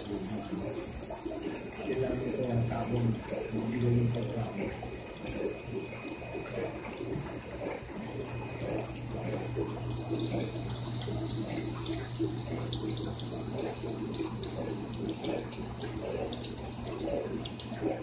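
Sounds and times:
low pump hum: 0.0 - 18.0
water splashing into tank: 0.0 - 18.0.

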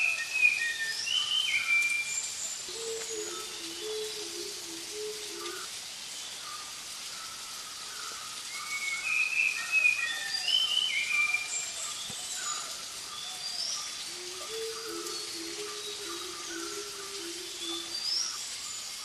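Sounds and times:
steady background hiss: 0.0 - 19.0
wild birds whistling: 0.0 - 19.0.

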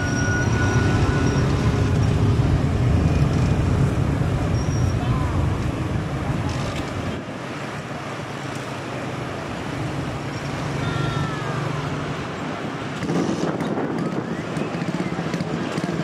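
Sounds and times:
jet engines rushing: 0.0 - 10.8.

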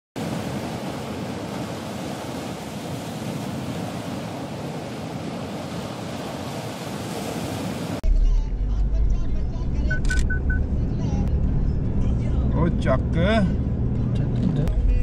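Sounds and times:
ocean surf rushing: 0.2 - 8.0.

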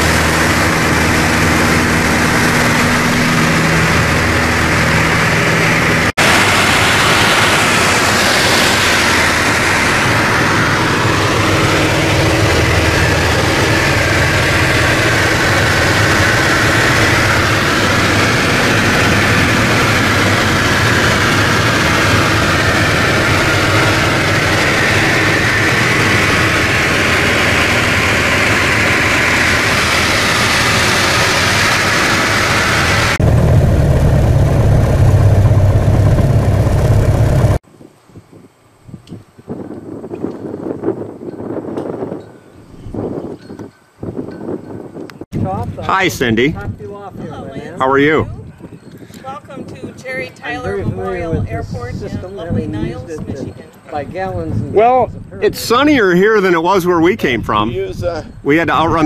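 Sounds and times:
propeller airplane engine drone: 0.0 - 42.2.

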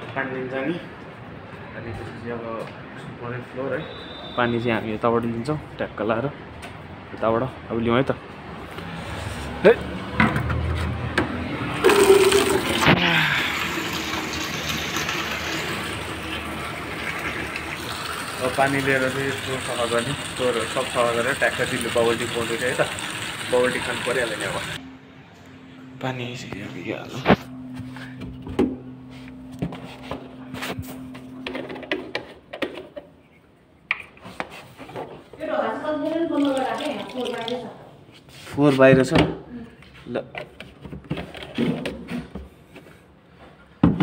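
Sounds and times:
tap water gushing into bucket: 11.8 - 24.8, 36.3 - 37.6
plastic jug knocking and clattering: 43.8 - 44.0.

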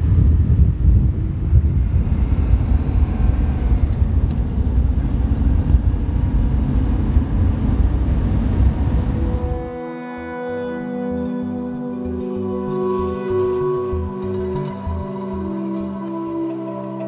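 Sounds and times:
car engine rumble from cabin: 0.0 - 9.7
road and wind noise: 0.0 - 9.9.

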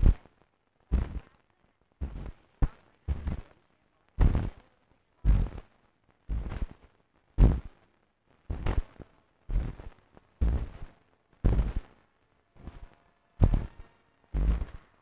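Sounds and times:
noisy bursts with deep low end: 6.3 - 6.8, 10.4 - 10.9, 14.4 - 14.8.

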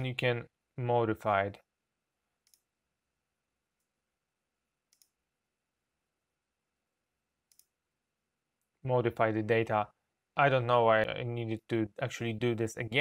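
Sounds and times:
faint computer mouse clicks: 2.4 - 2.7, 4.9 - 5.2, 7.5 - 7.8.

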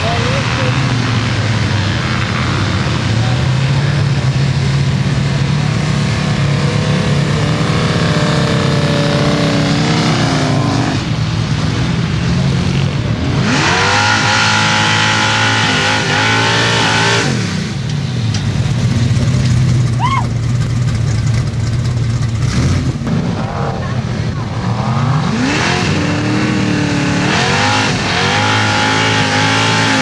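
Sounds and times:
truck engine revving: 0.0 - 30.0.

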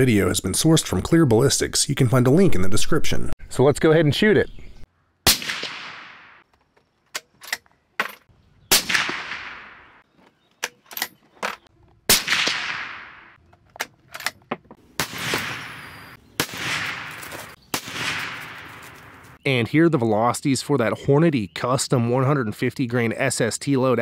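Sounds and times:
suppressed rifle shots: 5.3 - 6.4, 8.7 - 10.0, 12.1 - 13.4, 15.0 - 19.2.

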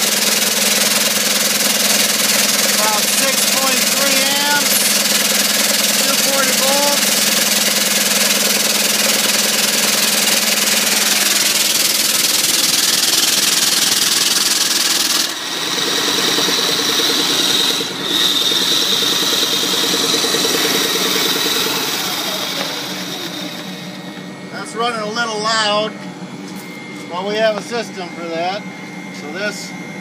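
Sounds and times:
steam engine beat: 0.0 - 23.6
exhaust steam hissing: 0.0 - 24.3
high whine: 2.2 - 30.0.

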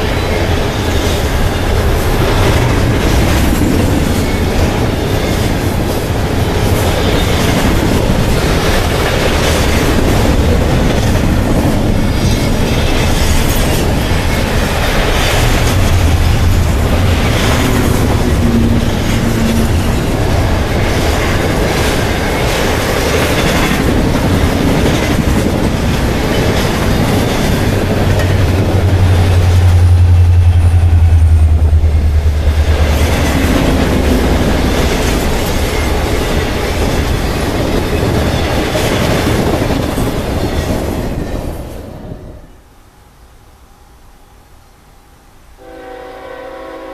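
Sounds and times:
train wheels rumbling on rails: 0.0 - 42.6.

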